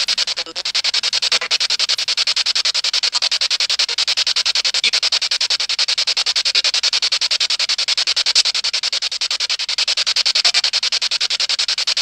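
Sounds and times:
pulsing static hiss: 0.0 - 6.0.

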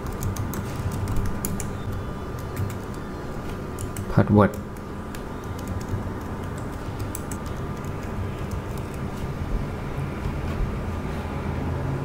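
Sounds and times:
computer keyboard clicks: 0.0 - 9.0.

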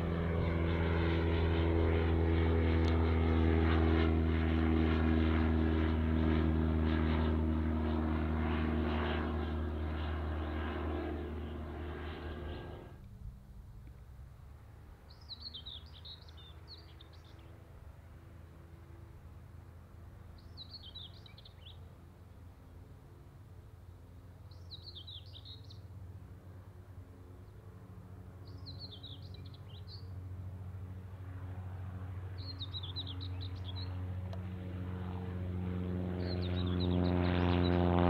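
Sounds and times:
propeller plane engine drone: 0.0 - 38.0
songbird singing: 15.0 - 17.5, 20.3 - 21.9, 24.5 - 25.9, 28.4 - 30.2, 32.4 - 34.0, 36.2 - 37.8.

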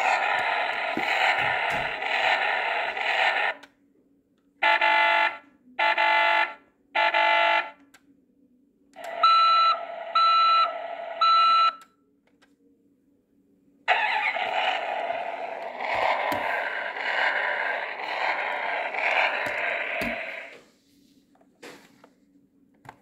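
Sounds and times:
toy continuous electronic tone: 0.0 - 3.6, 4.6 - 7.8, 9.0 - 11.7, 13.9 - 20.6
short alarm-like blasts: 4.6 - 7.7, 13.9 - 20.6.

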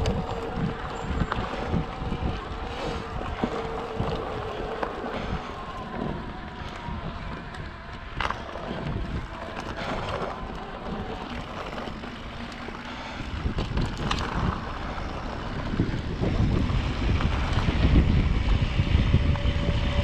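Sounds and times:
bike rattling over bumps: 0.0 - 20.0
bike tyres rolling on dirt: 0.0 - 20.0
wind buffeting microphone: 0.0 - 20.0.

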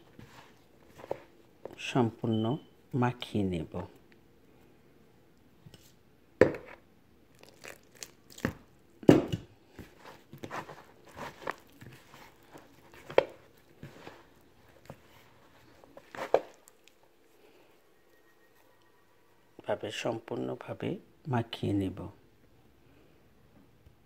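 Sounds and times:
crumbly dough rustling: 0.0 - 2.0, 5.5 - 18.8.

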